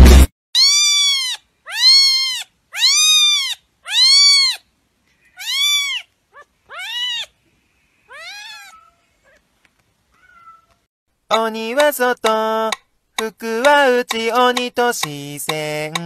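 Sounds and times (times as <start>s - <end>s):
cat chirp: 0.6s - 4.6s, 5.2s - 7.3s, 8.1s - 9.4s, 10.2s - 10.9s
cat meowing: 0.6s - 4.6s, 5.3s - 7.3s, 8.1s - 9.4s, 10.2s - 10.9s.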